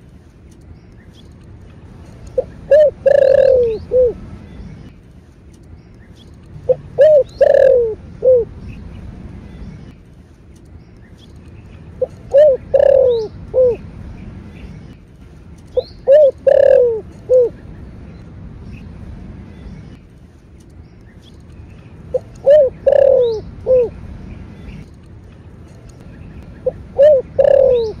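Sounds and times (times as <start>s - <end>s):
dove cooing: 2.4s - 4.2s, 6.7s - 8.5s, 12.0s - 13.8s, 15.8s - 17.6s, 22.1s - 24.0s, 26.6s - 28.0s.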